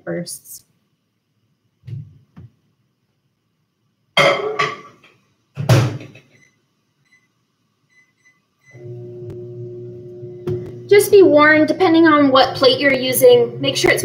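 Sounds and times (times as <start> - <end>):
microwave humming: 7.9 - 14.0.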